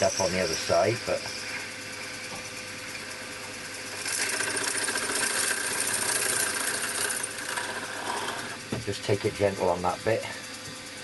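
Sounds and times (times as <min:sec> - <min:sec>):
spindle motor running: 0:00.0 - 0:11.0
drill cutting through metal: 0:03.8 - 0:08.6.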